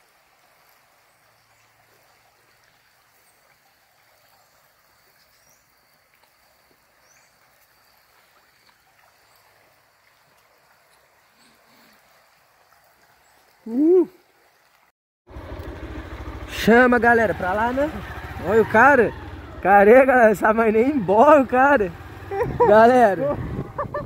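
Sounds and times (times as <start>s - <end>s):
river running over rocks: 0.0s - 14.9s.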